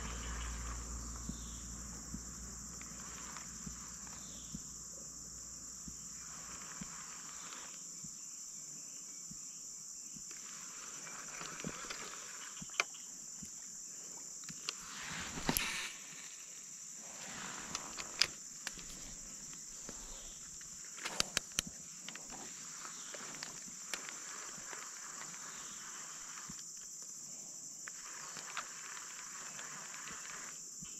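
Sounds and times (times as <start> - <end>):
high-pitched insect drone: 0.0 - 30.9
faint clicks: 17.6 - 27.2, 27.8 - 30.9.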